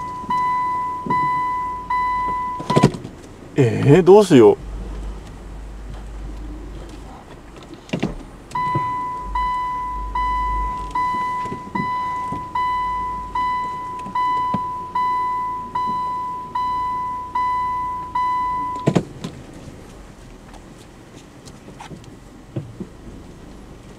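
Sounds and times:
reverse warning beeps: 0:00.0 - 0:02.9, 0:08.5 - 0:18.9.

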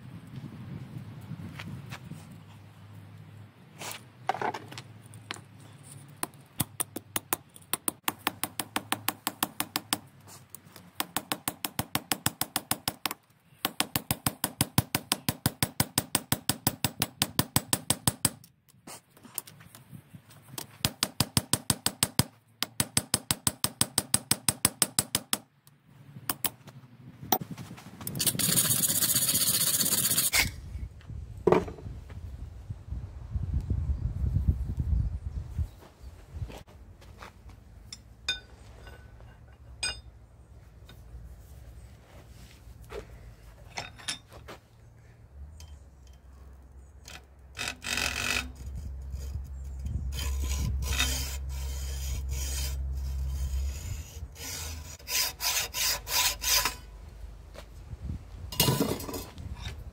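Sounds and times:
wire brush scrubbing steel: 0:28.2 - 0:30.5, 0:47.8 - 0:56.9
hammer striking steel on anvil: 0:37.9 - 0:40.1.

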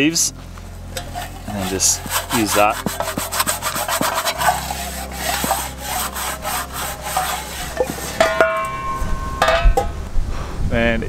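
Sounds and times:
grass scraping metal pan: 0:00.8 - 0:10.0
pan clinking and ringing: 0:07.8 - 0:09.9.

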